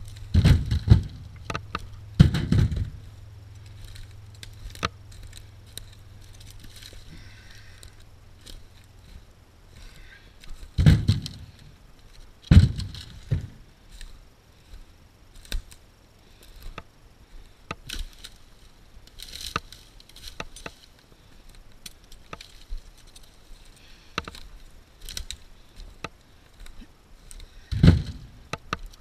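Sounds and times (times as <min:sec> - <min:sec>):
wood thudding into metal trailer: 0:00.2 - 0:03.1, 0:10.8 - 0:11.6, 0:12.5 - 0:13.6, 0:27.7 - 0:28.4
footsteps through dry brush: 0:02.7 - 0:29.0
twigs snapping: 0:03.6 - 0:09.2, 0:15.4 - 0:15.8, 0:19.0 - 0:29.0.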